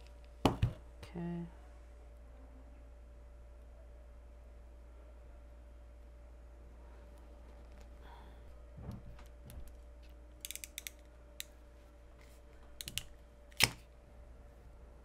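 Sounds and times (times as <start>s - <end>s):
crimp tool clicking: 10.4s - 11.5s.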